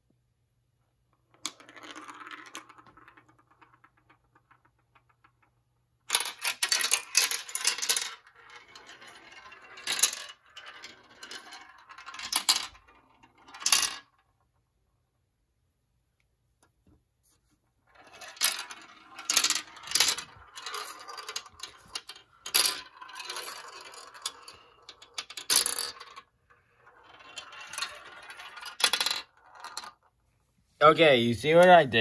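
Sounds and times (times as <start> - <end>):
plastic ball rattling through marble run: 1.3 - 5.5, 6.1 - 14.2, 17.9 - 30.1.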